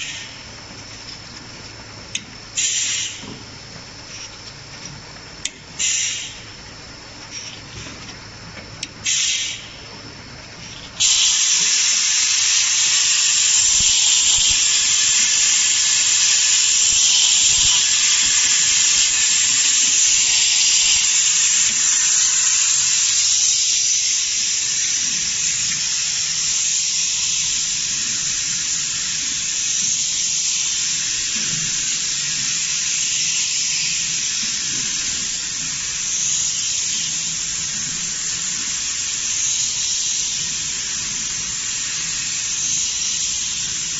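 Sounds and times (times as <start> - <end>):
bottling machine hissing: 0.0 - 43.9.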